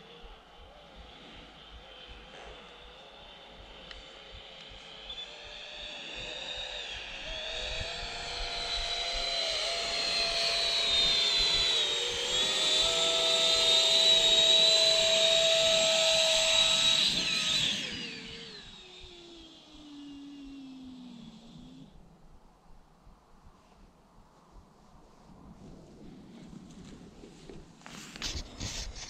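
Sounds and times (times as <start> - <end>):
electric ducted fans whining: 0.0 - 22.6.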